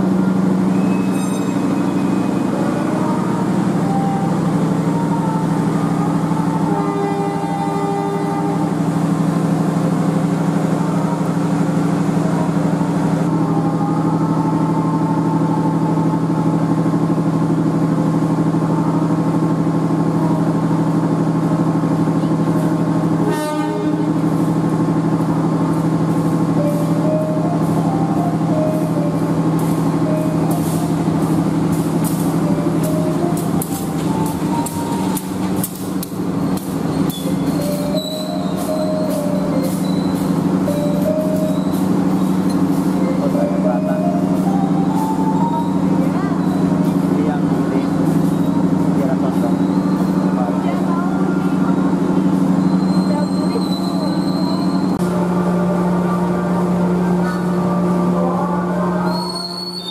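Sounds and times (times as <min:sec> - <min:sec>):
diesel train engine drone: 0:00.0 - 0:59.9
train wheels clicking over rail joints: 0:29.5 - 0:47.2.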